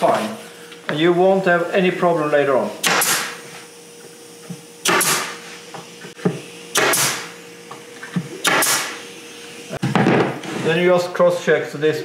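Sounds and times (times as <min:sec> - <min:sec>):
nail gun firing: 0:02.8 - 0:03.4, 0:04.8 - 0:05.4, 0:06.7 - 0:07.3, 0:08.4 - 0:09.0.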